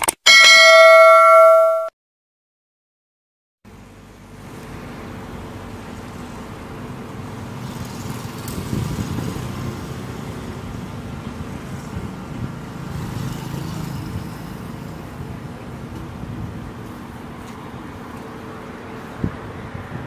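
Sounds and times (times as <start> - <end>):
cars driving past: 3.8 - 20.0.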